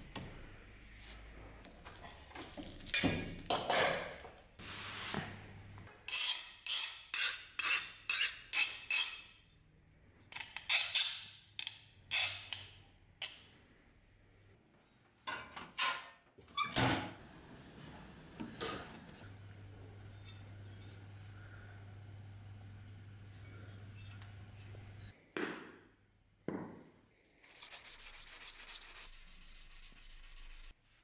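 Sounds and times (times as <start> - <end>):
file rasping on knife blade: 6.1 - 9.2.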